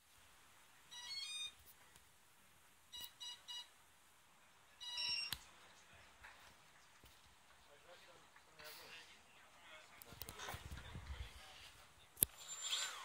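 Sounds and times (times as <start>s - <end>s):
faint steady hiss: 0.0s - 13.0s
electronic beeps: 2.9s - 3.7s, 4.8s - 5.4s.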